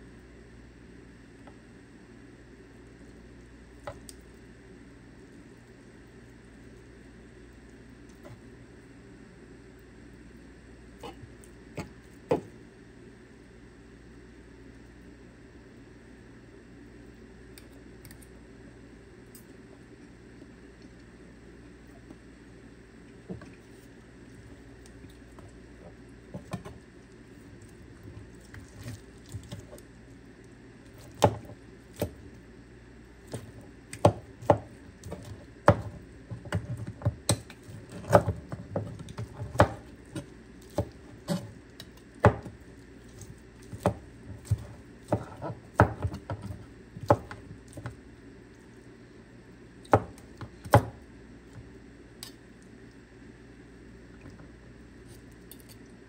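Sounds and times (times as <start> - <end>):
faint steady hum: 0.0 - 56.0
knocks and clicks of food preparation: 11.8 - 12.5, 25.8 - 26.8, 33.3 - 41.5, 42.2 - 42.6, 43.6 - 48.0, 49.9 - 51.7.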